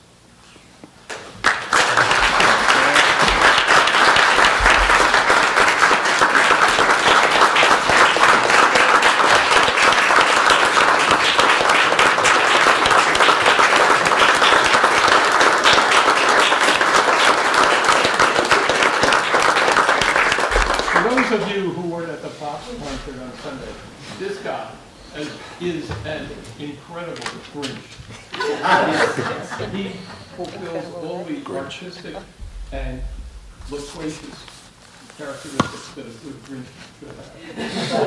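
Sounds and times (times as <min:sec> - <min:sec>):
crowd applauding: 0:01.1 - 0:21.7.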